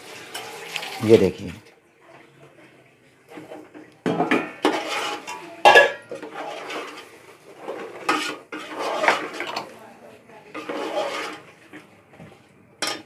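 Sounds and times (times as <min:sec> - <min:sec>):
wet rustling of mixing: 0:00.0 - 0:01.6, 0:06.2 - 0:12.6.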